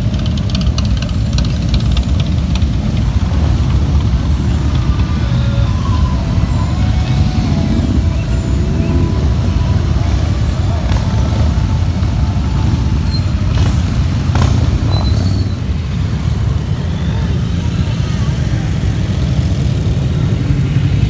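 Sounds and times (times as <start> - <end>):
motorcycles riding slowly past: 0.0 - 21.0.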